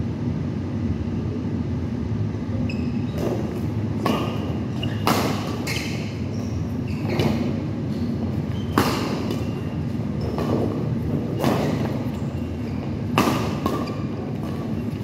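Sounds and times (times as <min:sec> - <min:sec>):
steady low hum: 0:00.0 - 0:15.0
rackets smacking shuttlecock: 0:03.2 - 0:15.0.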